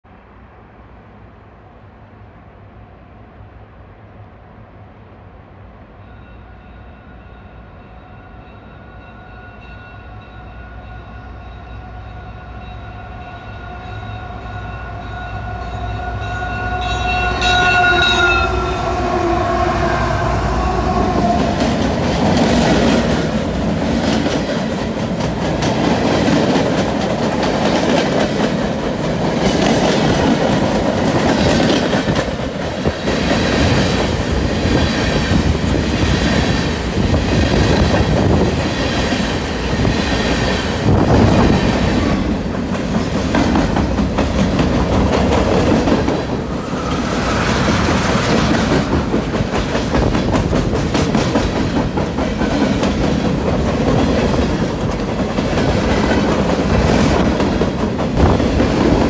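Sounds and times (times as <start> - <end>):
locomotive horn chord: 11.2 - 21.8
train wheels rumbling and clacking: 15.3 - 59.0.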